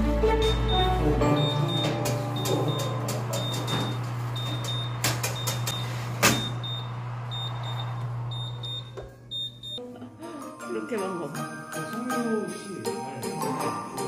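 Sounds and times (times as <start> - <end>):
oven humming: 0.0 - 9.8
oven door shutting: 0.4 - 7.0.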